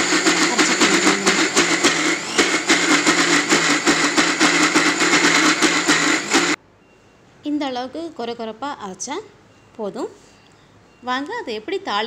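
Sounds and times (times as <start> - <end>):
fast rattle of grinder jar: 0.0 - 6.6
mixer grinder motor whine: 0.0 - 6.6.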